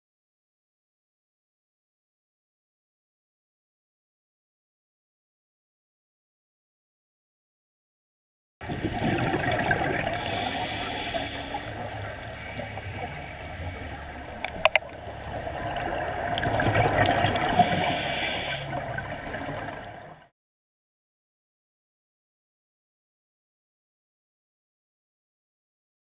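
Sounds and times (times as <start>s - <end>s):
bubbly gurgling exhalation: 8.6s - 13.2s, 14.3s - 20.1s
hissing regulator inhalation: 8.9s - 14.7s, 17.4s - 19.0s.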